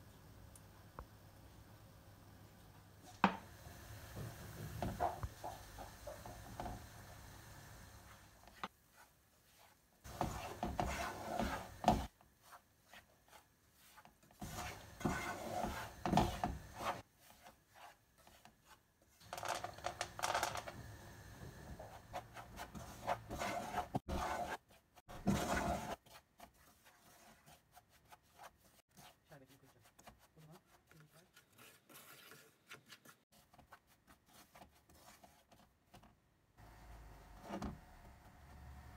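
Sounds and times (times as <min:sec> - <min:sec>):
wooden spoon scraping frying pan: 0:08.0 - 0:20.6, 0:21.7 - 0:35.6.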